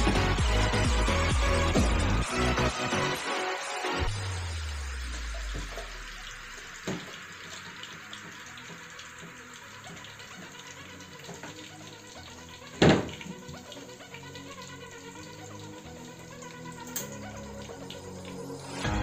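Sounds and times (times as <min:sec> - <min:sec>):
pot of water simmering: 0:04.1 - 0:19.0.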